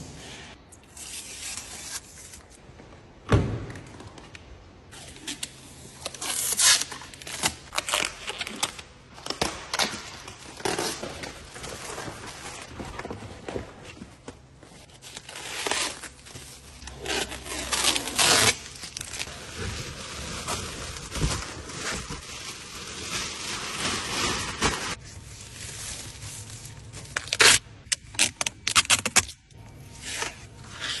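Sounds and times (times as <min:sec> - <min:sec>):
plastic wrapping rustling: 0:14.8 - 0:29.3.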